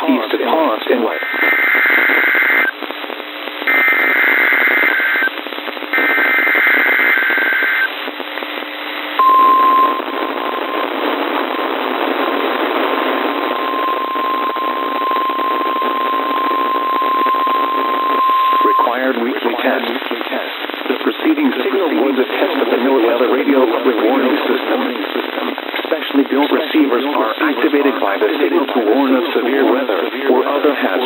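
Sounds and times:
radio static hiss: 0:00.0 - 0:31.0
steady single tone: 0:09.2 - 0:12.0, 0:13.2 - 0:19.1
warbling digital tones: 0:13.3 - 0:19.1.

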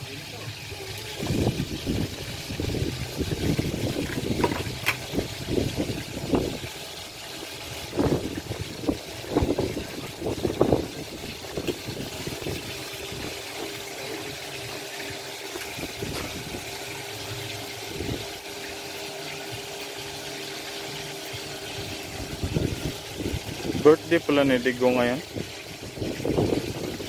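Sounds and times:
knocks and clatter: 0:03.6 - 0:05.0.

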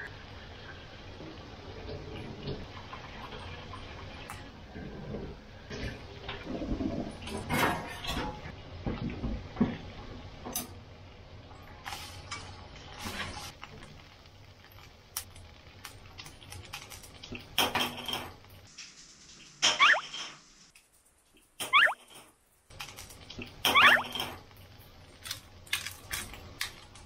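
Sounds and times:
short loud bursts with squeak: 0:19.7 - 0:20.1, 0:21.6 - 0:22.1, 0:23.7 - 0:24.1.

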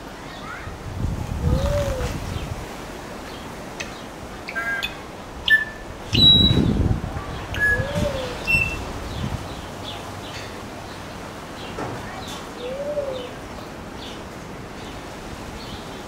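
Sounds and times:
wing flaps rustle: 0:01.0 - 0:02.8
low arched hoot: 0:01.4 - 0:02.2, 0:07.6 - 0:08.8, 0:12.6 - 0:13.4
bird squeaky whistles and clicks: 0:04.5 - 0:06.7.

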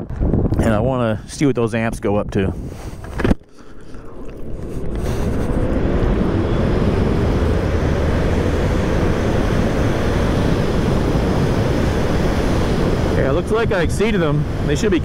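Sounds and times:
wind and road noise rush: 0:00.0 - 0:15.0
electric motor whine: 0:04.2 - 0:14.6.

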